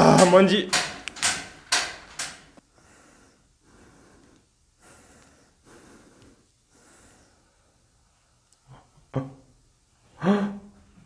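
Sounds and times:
person breathing softly: 2.6 - 8.3.

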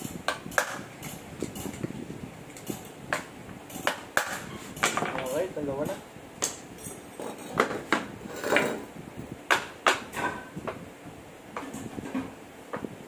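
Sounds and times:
metal clinks and knocks: 6.4 - 8.8.

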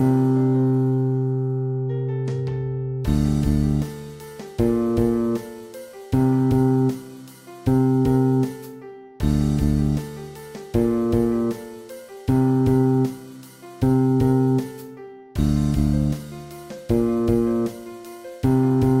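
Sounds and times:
plucked bass guitar notes: 1.9 - 3.9, 9.2 - 10.0, 10.8 - 11.6, 15.4 - 16.3, 16.9 - 17.7.

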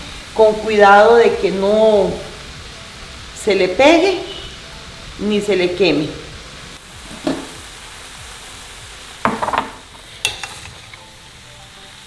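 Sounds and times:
ground beef sizzling: 0.0 - 12.0
spoon knocking on dish: 9.2 - 10.6.

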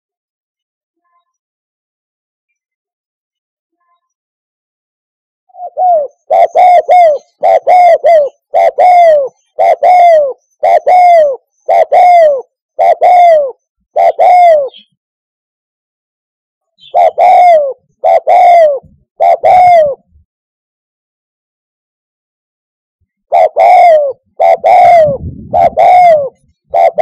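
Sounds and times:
dove cooing: 5.5 - 14.9, 16.8 - 20.1, 23.3 - 27.0.

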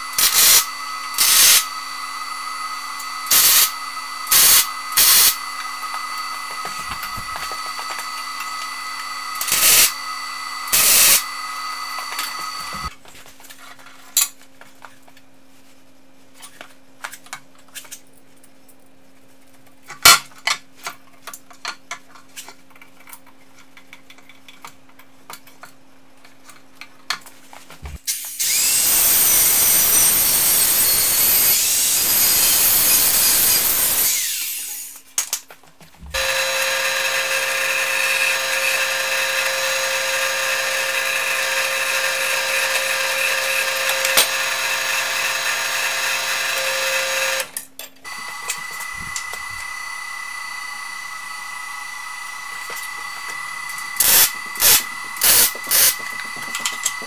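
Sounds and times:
angle grinder cutting steel: 0.0 - 12.9, 28.1 - 35.0, 36.2 - 57.0
drill press running: 0.0 - 12.9, 36.1 - 57.0.

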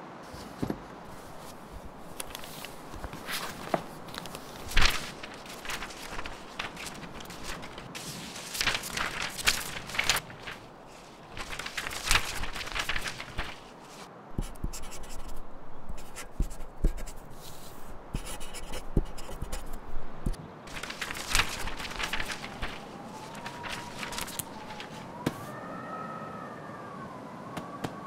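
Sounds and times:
pen scratching on paper: 14.4 - 19.9.

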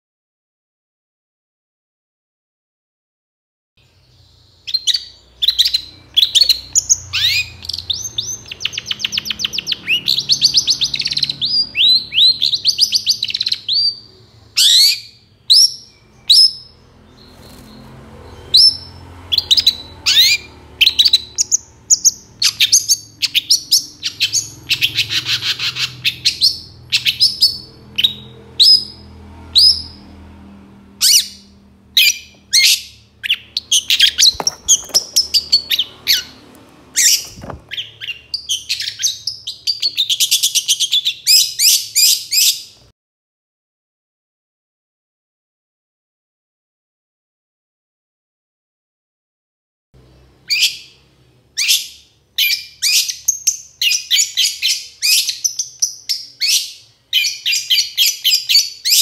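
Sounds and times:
shrike singing with rattling trills: 4.6 - 29.0, 32.0 - 36.4.

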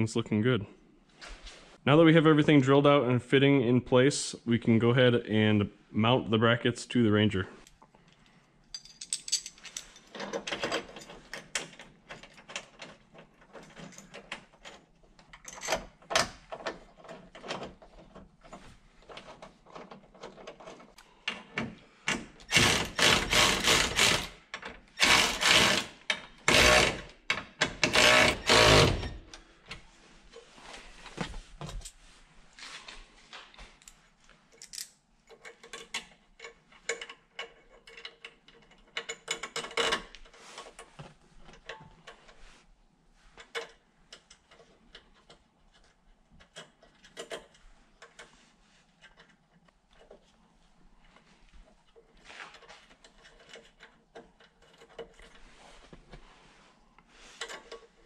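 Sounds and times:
metal bolts and nuts rattling: 8.7 - 29.3, 34.6 - 40.9, 52.1 - 55.5.

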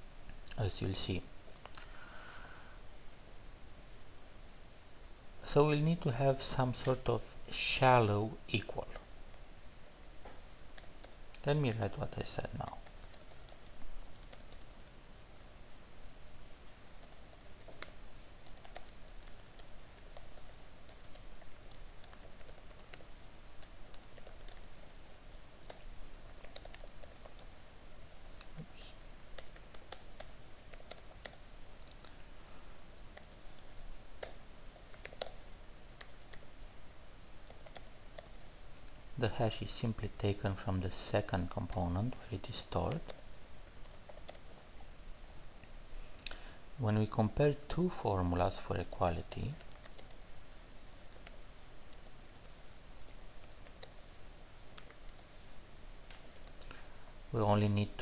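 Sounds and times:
computer keyboard keystrokes: 12.6 - 14.7, 17.0 - 23.0, 23.6 - 27.6, 29.4 - 32.0, 34.2 - 35.4, 37.4 - 38.3, 43.0 - 43.2, 43.8 - 44.4, 49.6 - 50.2, 54.8 - 55.3.

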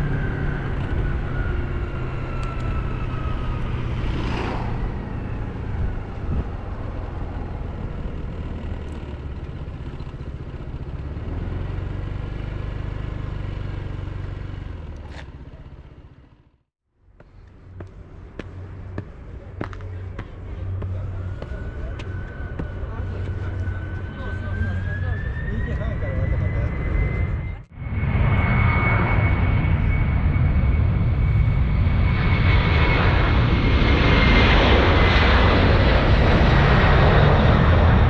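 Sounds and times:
whooshing traffic or wind: 0.0 - 12.3
scooter engine running: 3.9 - 16.6.

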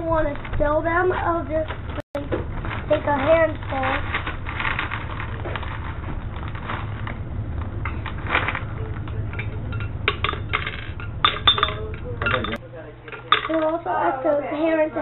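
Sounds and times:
gumballs rustling in plastic bag: 1.6 - 7.4.

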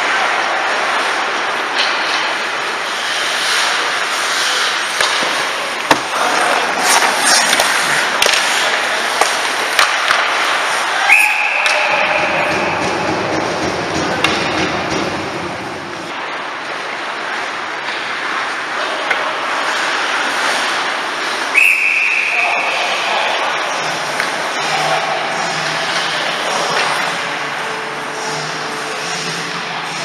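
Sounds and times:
skates scraping on ice: 0.0 - 14.8, 16.0 - 28.9
sticks and puck clacking: 0.0 - 27.7
referee's whistle: 11.0 - 12.3, 21.6 - 22.6.

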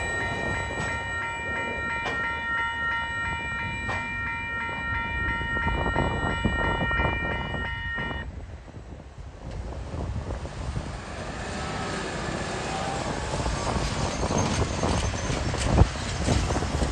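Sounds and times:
level crossing warning bells: 0.0 - 8.3
train wagons rumbling and clattering: 0.0 - 16.9.

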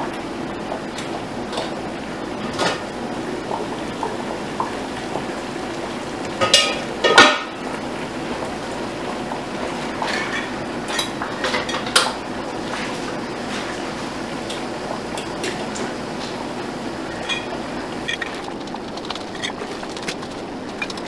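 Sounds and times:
boiling water bubbling hiss: 0.0 - 21.0
metal pot lid clanking: 17.2 - 18.4.

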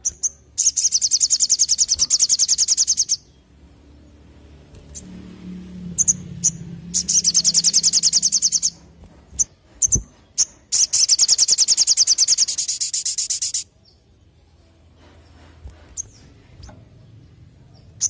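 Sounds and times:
bird chirping and trilling: 0.0 - 4.2, 5.9 - 14.0.

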